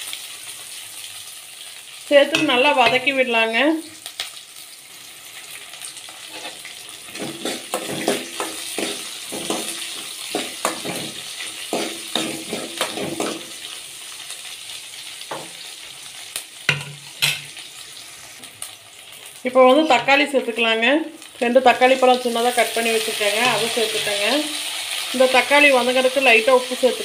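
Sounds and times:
food sizzling in hot oil: 0:00.0 - 0:27.0
spoon scraping metal pan: 0:06.2 - 0:13.5, 0:23.3 - 0:24.3.

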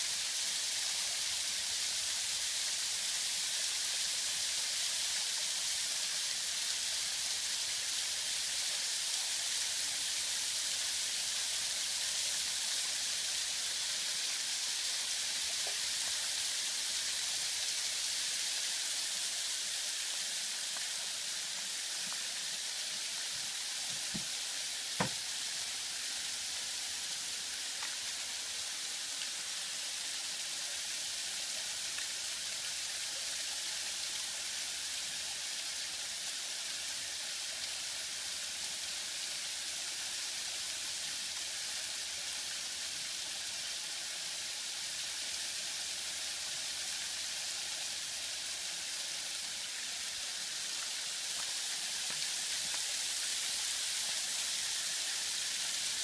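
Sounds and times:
water running down waterfall: 0:00.0 - 0:56.0.

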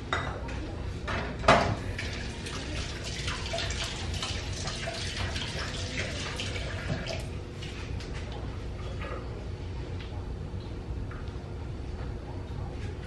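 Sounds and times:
water running from a tap: 0:01.9 - 0:08.2
water drips and spatters: 0:01.9 - 0:08.4.

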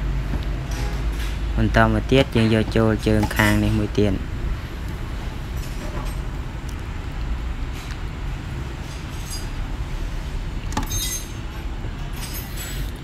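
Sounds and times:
low background rumble: 0:00.0 - 0:13.0.

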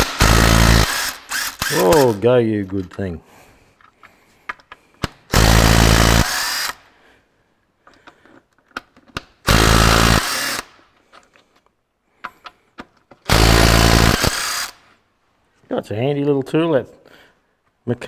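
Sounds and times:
impact wrench hammering: 0:00.0 - 0:02.1, 0:09.5 - 0:10.7, 0:13.3 - 0:14.8
metallic clicks of socket and nuts: 0:03.8 - 0:05.1.

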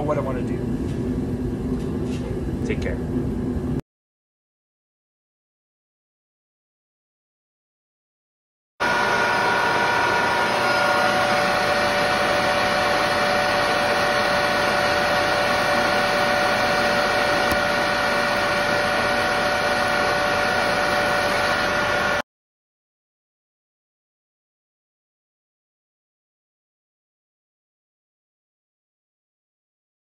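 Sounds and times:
metal lathe whining: 0:08.8 - 0:22.2.

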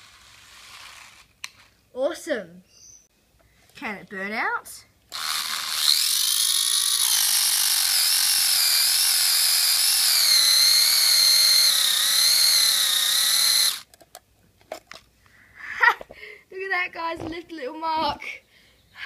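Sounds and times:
toy car motor whining: 0:00.0 - 0:01.7, 0:05.1 - 0:13.9
wheels spinning on concrete: 0:00.0 - 0:01.8, 0:05.2 - 0:13.9.

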